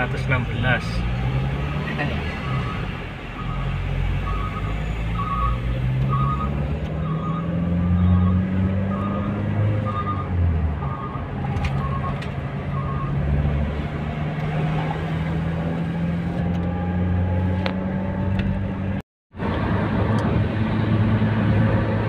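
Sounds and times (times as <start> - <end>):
car engine accelerating: 0.0 - 22.0
short beeps: 4.3 - 11.2.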